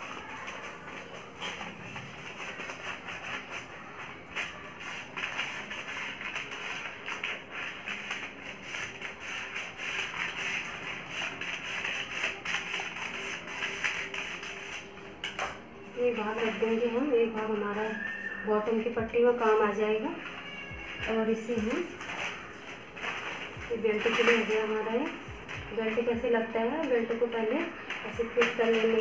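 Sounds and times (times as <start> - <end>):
paper crackling and rustling: 0.0 - 29.0
scissors cutting newspaper: 0.0 - 29.0.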